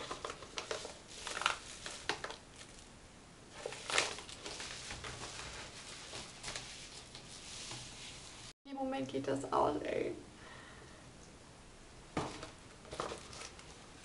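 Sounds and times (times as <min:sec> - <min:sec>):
paper rustling and crinkling: 0:00.0 - 0:02.9, 0:03.5 - 0:08.5, 0:12.2 - 0:13.9.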